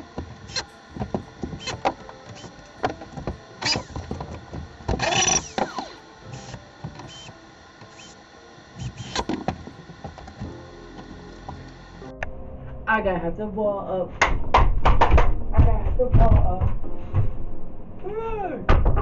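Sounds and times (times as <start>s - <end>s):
small power tool whirring: 0.0s - 12.1s.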